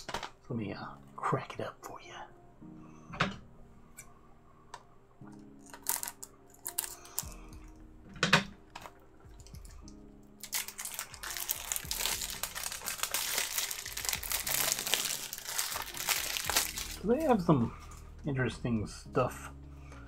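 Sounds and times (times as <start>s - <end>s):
plastic wrap crinkling: 10.4s - 17.4s.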